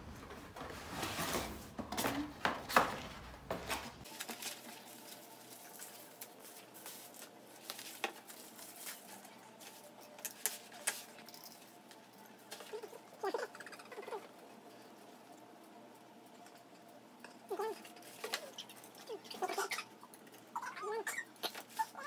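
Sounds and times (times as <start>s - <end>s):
plastic crinkling: 2.8s - 12.9s.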